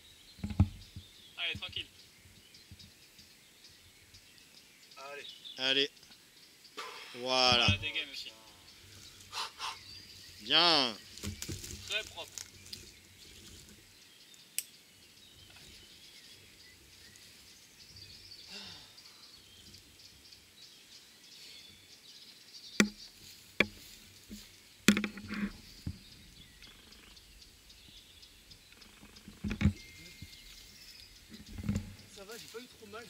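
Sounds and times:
faint birdsong: 0:00.0 - 0:33.0
climbing gear knocking on rock: 0:00.4 - 0:01.1.

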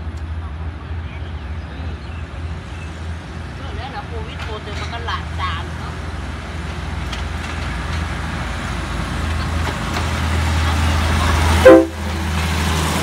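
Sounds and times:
diesel train engine drone: 0:00.0 - 0:13.0
train horn blast: 0:11.6 - 0:12.2.

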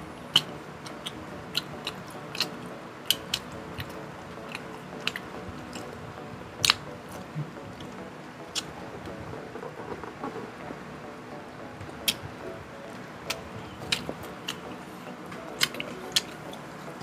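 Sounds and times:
chewing and biting: 0:00.3 - 0:05.9, 0:13.3 - 0:14.8, 0:15.5 - 0:16.8.

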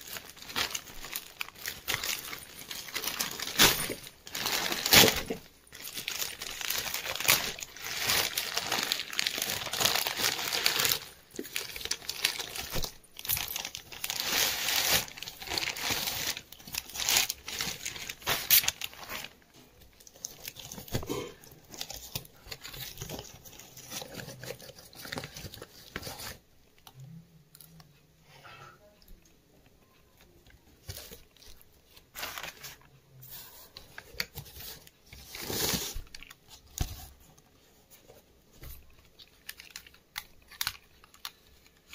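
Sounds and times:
plastic bag crinkling and tearing: 0:00.0 - 0:26.4, 0:34.0 - 0:36.9, 0:38.6 - 0:41.9.

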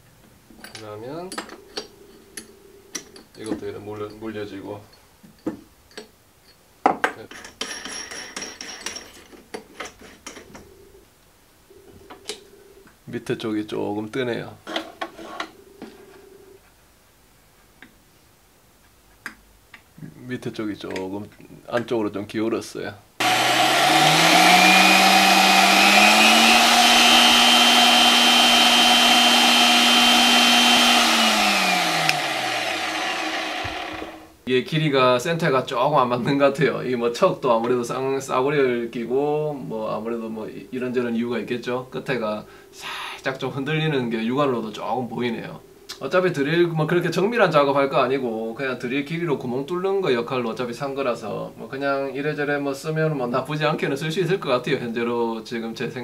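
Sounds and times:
drill motor whine: 0:23.2 - 0:34.3.

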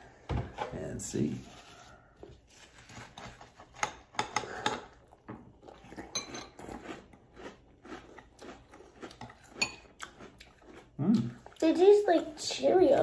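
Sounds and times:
crunching and chewing cereal: 0:02.4 - 0:12.6
spoons clinking on ceramic bowls: 0:06.1 - 0:06.6, 0:09.6 - 0:09.9.

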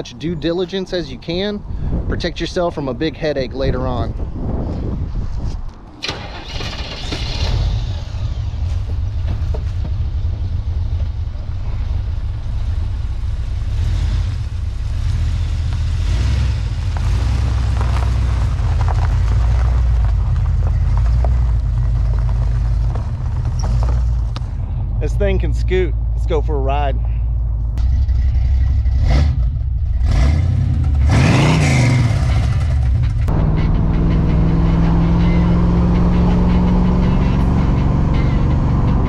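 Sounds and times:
car engine starting: 0:05.9 - 0:39.0
engine idling with deep rumble: 0:07.7 - 0:15.1, 0:18.6 - 0:30.1.

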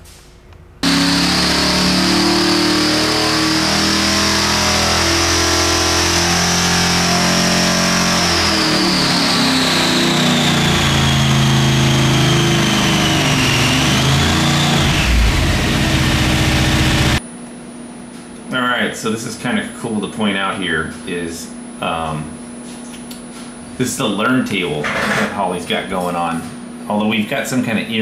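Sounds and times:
engine running loud: 0:00.8 - 0:17.2
high blower whine: 0:00.8 - 0:17.2.

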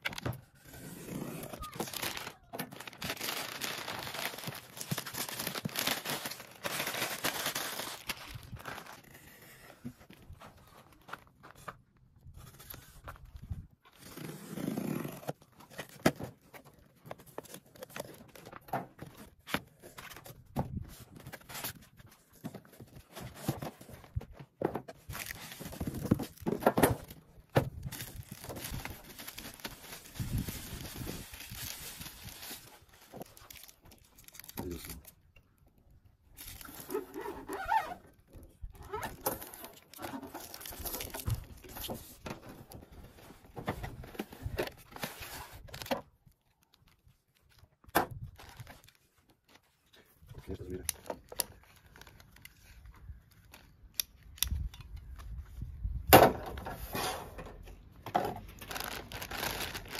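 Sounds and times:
packing tape tearing: 0:00.6 - 0:09.5, 0:58.5 - 0:59.9
plastic bag crinkling: 0:01.4 - 0:09.0, 0:27.8 - 0:35.2, 0:58.5 - 0:59.9.

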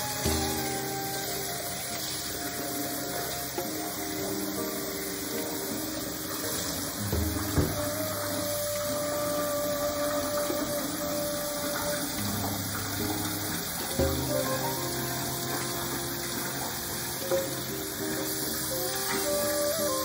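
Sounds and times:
tap water running into pot: 0:00.0 - 0:20.0
knock on pot: 0:07.1 - 0:07.9.

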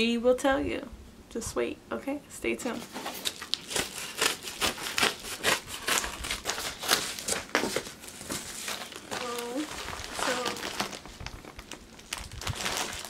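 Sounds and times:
plastic and paper packaging crinkling: 0:02.6 - 0:13.0.

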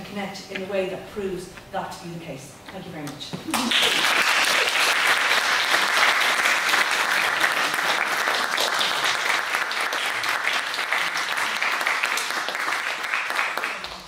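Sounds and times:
audience applauding: 0:03.5 - 0:14.0.

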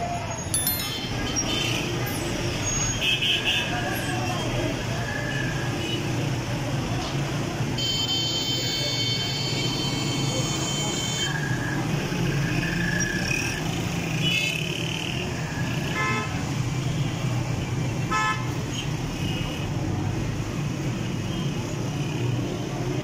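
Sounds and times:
traffic engines and road noise: 0:00.0 - 0:23.0
vehicle horns tooting: 0:07.8 - 0:11.3.

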